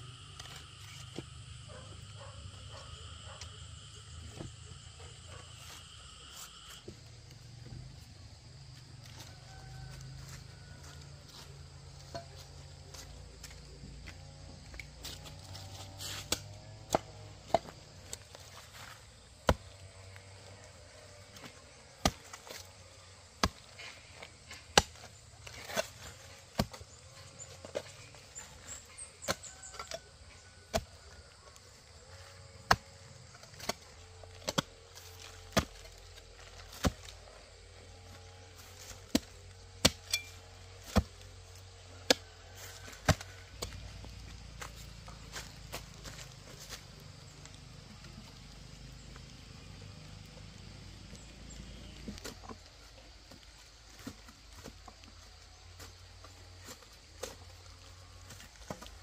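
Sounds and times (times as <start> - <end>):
metal hoe chopping into earth: 23.4 - 23.9, 24.5 - 26.9, 38.6 - 41.2.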